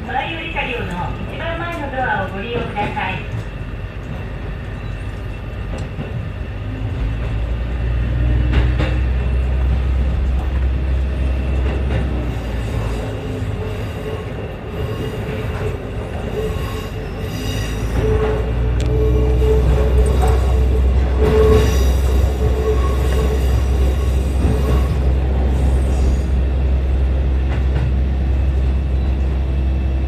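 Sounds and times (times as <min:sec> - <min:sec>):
rail click: 0:00.0 - 0:29.7
railcar engine drone: 0:00.0 - 0:30.0
wheels squealing: 0:16.1 - 0:26.3.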